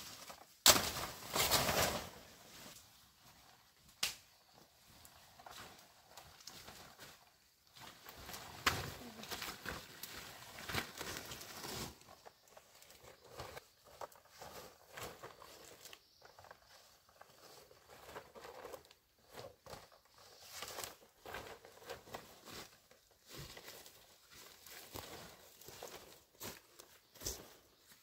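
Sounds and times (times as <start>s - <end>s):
leaves and grass rustling: 0.0s - 28.0s
footsteps in brush: 20.9s - 28.0s.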